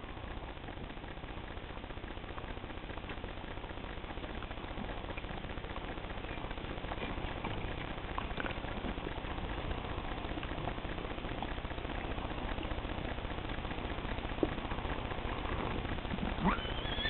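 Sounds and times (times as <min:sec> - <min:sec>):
low rumbling: 0:00.0 - 0:17.0.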